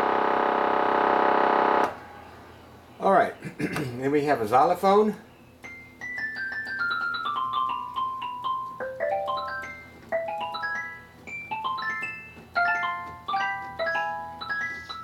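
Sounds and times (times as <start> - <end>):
electronic organ xylophone notes: 5.6 - 15.0.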